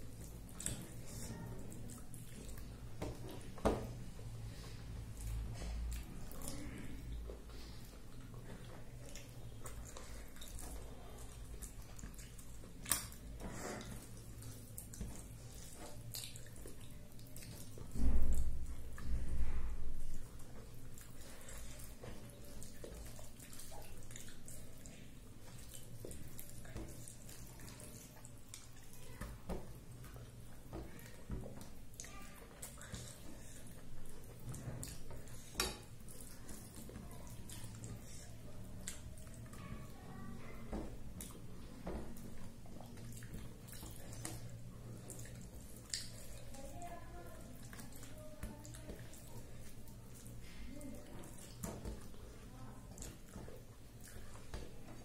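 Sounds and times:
fingers kneading food wet squishes: 0.0 - 55.0
chewing and lip smacks: 5.1 - 17.8, 30.0 - 39.7, 42.4 - 46.5.

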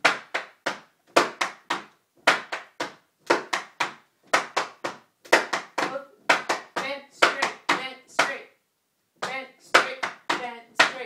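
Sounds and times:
tap shoes striking hard floor: 0.0 - 7.8.

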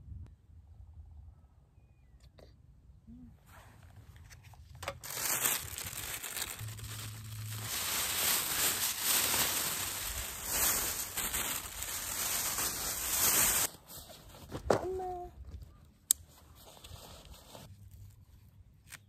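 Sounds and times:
plastic bag crinkling: 4.8 - 13.7.

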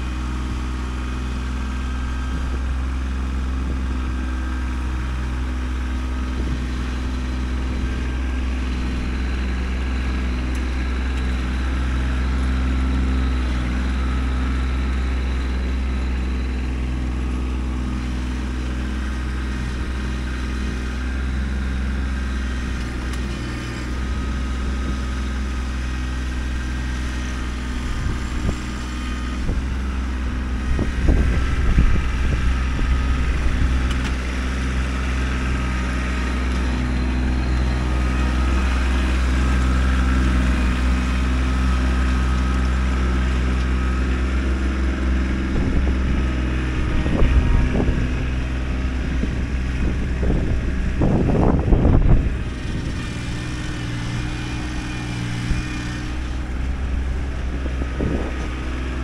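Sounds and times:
tractor diesel engine running: 0.0 - 59.0.

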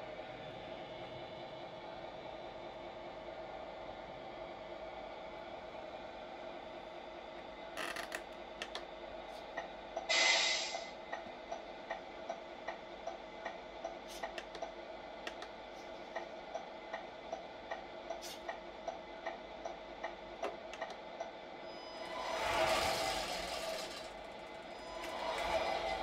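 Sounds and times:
short loud hiss: 10.1 - 10.9.

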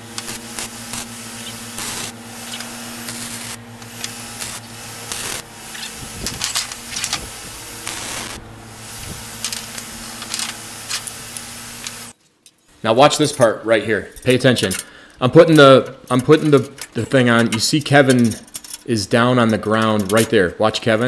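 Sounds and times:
steady hum: 0.0 - 12.2
welding arc crackling: 0.0 - 12.2.

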